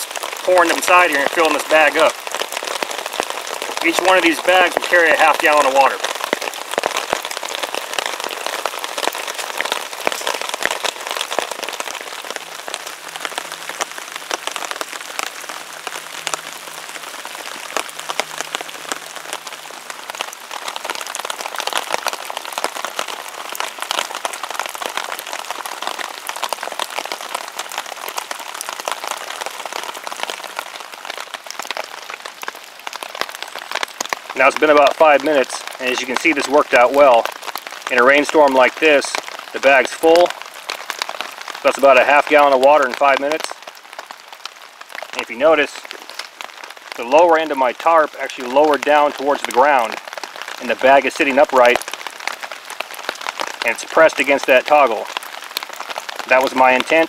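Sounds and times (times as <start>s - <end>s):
rain on a tarp: 0.0s - 57.0s.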